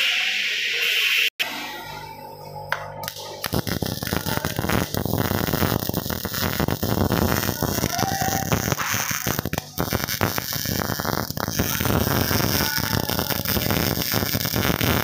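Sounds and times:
welding arc crackling: 0:03.0 - 0:15.0.

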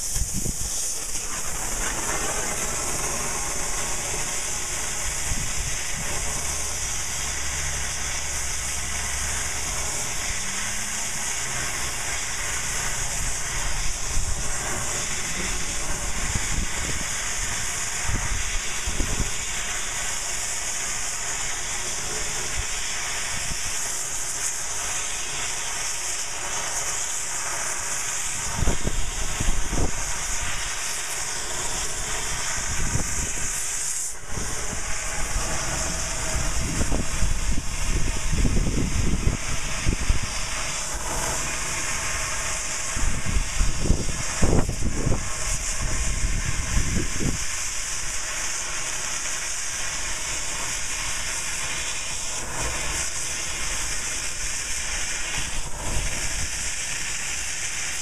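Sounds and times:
torch pops: 0:00.0 - 0:06.8
cutting torch hissing: 0:00.0 - 0:58.0.

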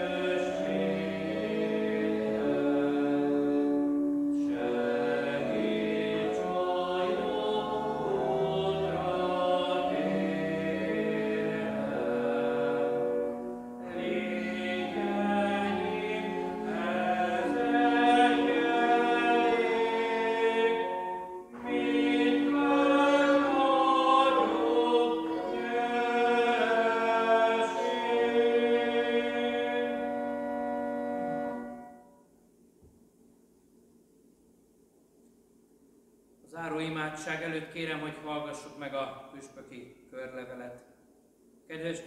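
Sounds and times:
voices singing a hymn: 0:00.0 - 0:31.9.

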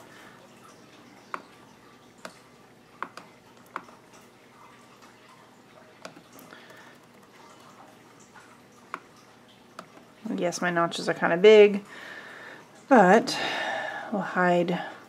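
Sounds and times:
laptop mouse and key clicks: 0:03.0 - 0:04.0, 0:06.0 - 0:07.7.

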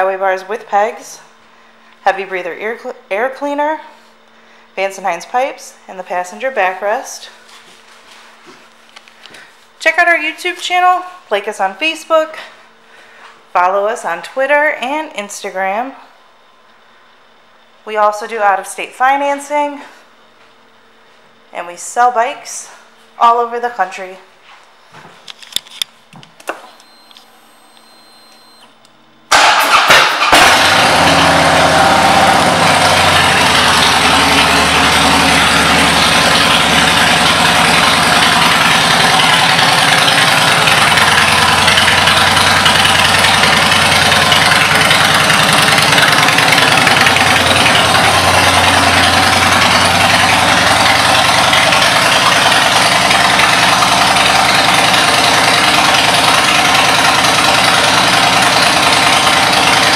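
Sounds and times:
electric starter cranking: 0:29.3 - 0:59.9
motorcycle engine idling: 0:31.7 - 0:59.9.

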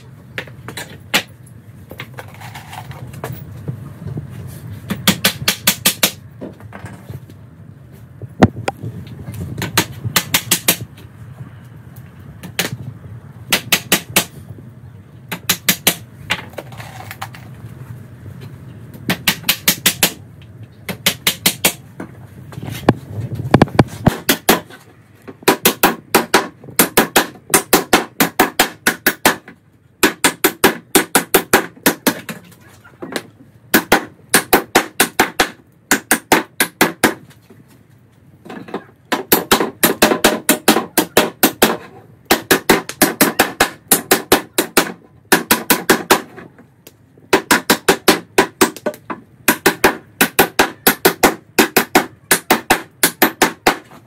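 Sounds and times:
hammer driving nails into wood: 0:25.4 - 0:32.4, 0:33.7 - 0:37.2, 0:38.5 - 0:46.5, 0:47.3 - 0:54.0.

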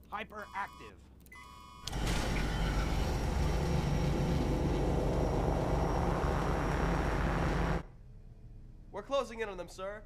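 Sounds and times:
spaceship engine rumble: 0:02.8 - 0:07.8.

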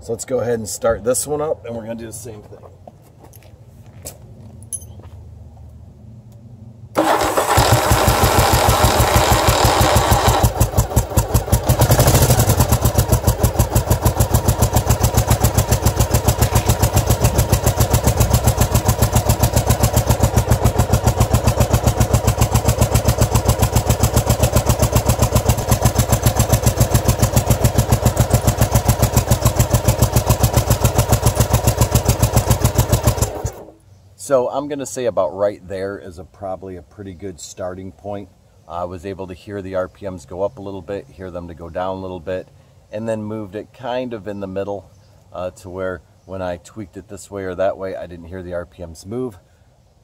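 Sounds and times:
motorcycle engine starting and idling: 0:06.9 - 0:33.8.

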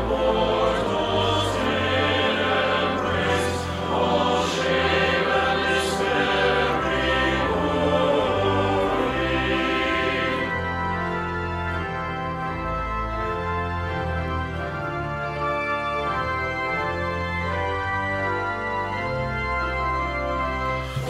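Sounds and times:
men's choir singing a hymn: 0:00.0 - 0:11.9.

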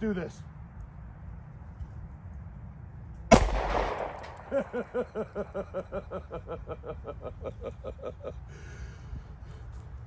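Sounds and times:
pistol shot: 0:03.3 - 0:05.2.

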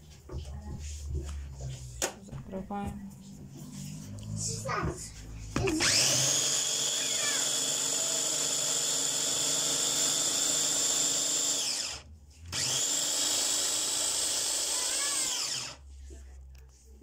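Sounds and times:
chopper motor whining: 0:05.7 - 0:15.8.

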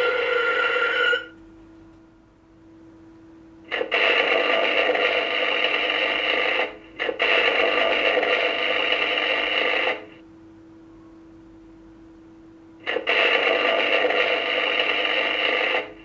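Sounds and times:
faint steady hum: 0:00.0 - 0:16.0
arc welding crackling hiss: 0:03.7 - 0:10.2, 0:12.8 - 0:16.0.

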